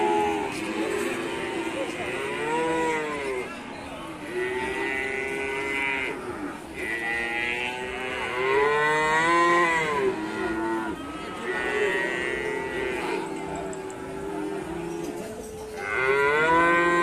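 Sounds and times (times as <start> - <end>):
cattle mooing: 4.4 - 17.0.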